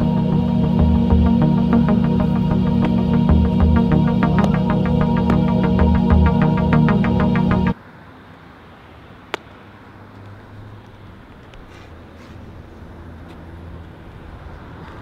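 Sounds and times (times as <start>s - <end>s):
electronic background music: 0.0s - 7.8s
outdoor traffic rumble: 0.0s - 15.0s.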